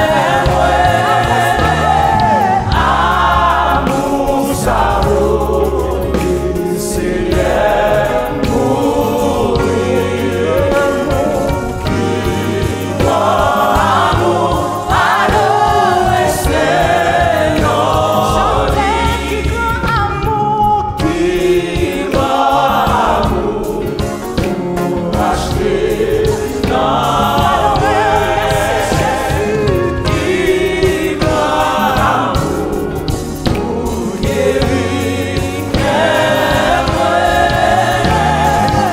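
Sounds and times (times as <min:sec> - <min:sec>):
choir singing: 0:00.0 - 0:38.9
instrumental accompaniment: 0:00.0 - 0:38.9
woman singing lead: 0:18.4 - 0:21.3.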